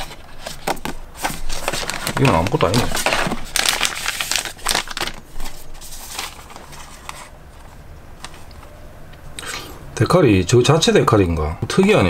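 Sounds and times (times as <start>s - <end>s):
packaging rustling and crinkling: 0.0s - 8.8s.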